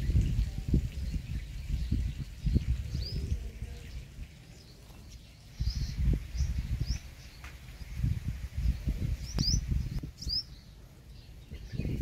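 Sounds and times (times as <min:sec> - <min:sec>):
high-pitched bird chirps: 0:09.2 - 0:10.7.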